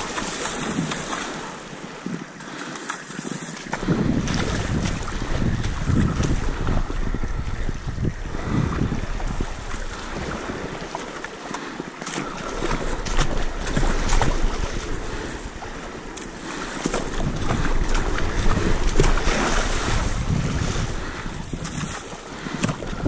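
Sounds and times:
water splashing along boat hull: 0.0s - 23.0s
wind buffeting microphone: 3.6s - 11.2s, 12.2s - 23.0s.

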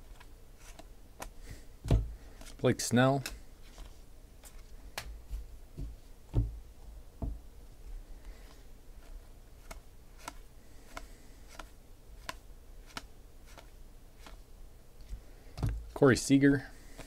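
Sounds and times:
cards being dealt ticking: 2.3s - 5.2s, 9.6s - 14.4s.

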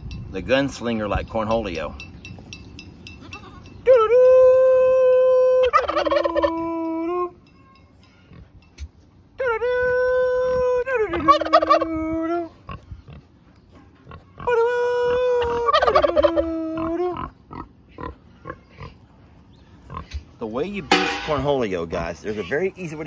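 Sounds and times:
turkey gobbling: 5.6s - 7.4s, 11.0s - 12.3s, 14.2s - 17.4s.

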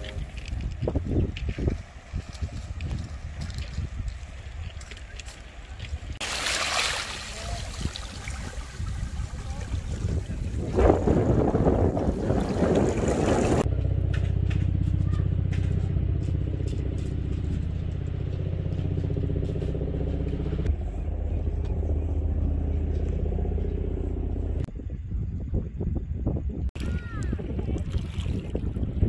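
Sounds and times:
wind: 0.0s - 29.0s
surf: 6.2s - 13.6s
engine running steadily: 8.5s - 26.2s.

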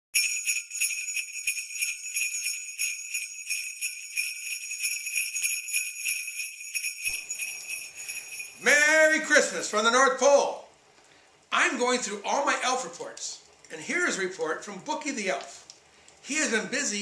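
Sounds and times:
sleigh bells jingling: 0.2s - 9.8s.

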